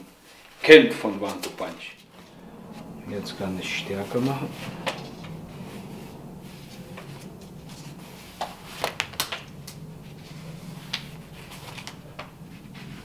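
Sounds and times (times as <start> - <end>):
fabric wrap rustling: 1.2 - 13.0
steady low hum: 1.8 - 13.0.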